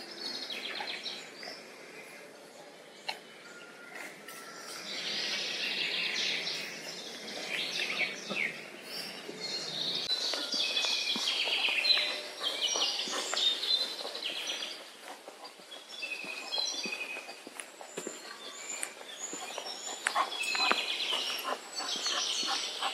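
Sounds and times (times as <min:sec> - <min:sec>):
songbirds chirping and trilling: 0:00.0 - 0:22.9.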